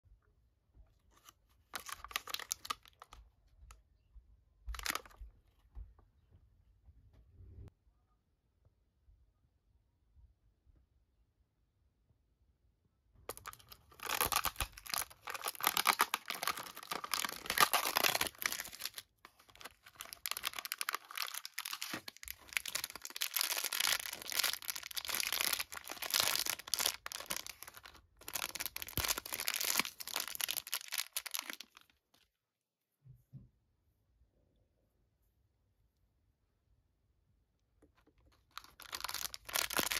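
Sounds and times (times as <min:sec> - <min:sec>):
foil bag crinkling and tearing: 0:01.7 - 0:03.1, 0:13.3 - 0:31.9, 0:38.5 - 0:39.9.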